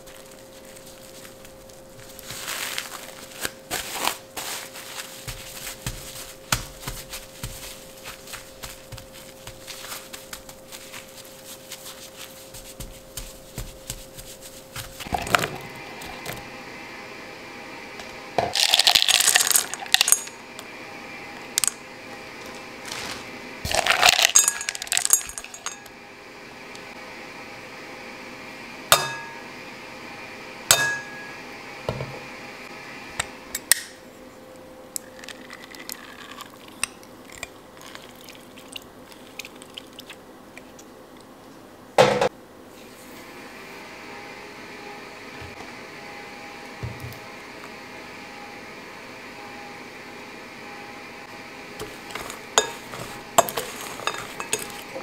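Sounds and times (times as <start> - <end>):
berries rattling into glass bowl: 18.5 - 20.3, 23.7 - 25.8.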